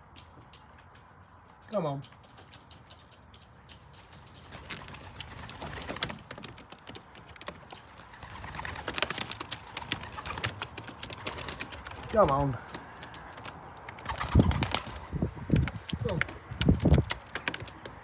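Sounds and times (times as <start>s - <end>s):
pigeon feet tapping on roof: 2.0s - 18.0s
pigeons cooing: 7.9s - 16.5s.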